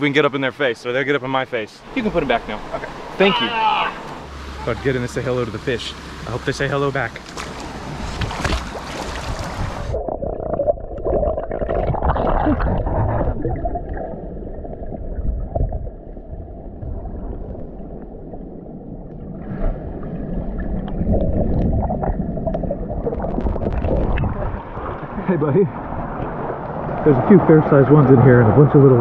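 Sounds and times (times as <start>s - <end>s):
splashing water: 3.6s - 15.7s
muffled underwater swimming: 7.5s - 27.4s
underwater gurgling and bubbling: 8.6s - 27.0s.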